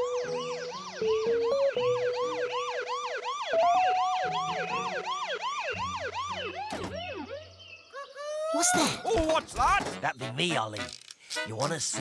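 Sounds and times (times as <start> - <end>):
background music: 0.0 - 7.4, 8.7 - 12.0
cartoon siren wailing: 0.0 - 8.8.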